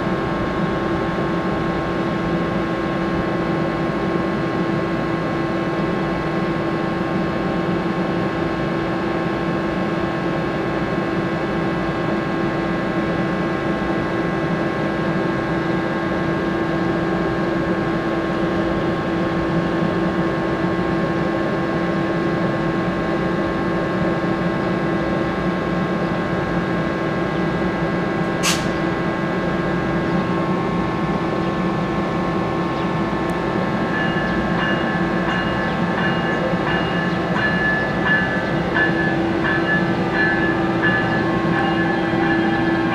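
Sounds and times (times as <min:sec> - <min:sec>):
locomotive equipment hum: 0:24.7 - 0:42.9
sharp click: 0:28.4 - 0:28.8.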